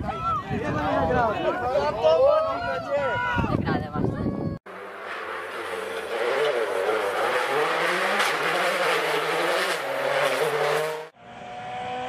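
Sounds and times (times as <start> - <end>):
another rally car engine: 4.7 - 12.0
rally car engine revving: 4.7 - 12.0.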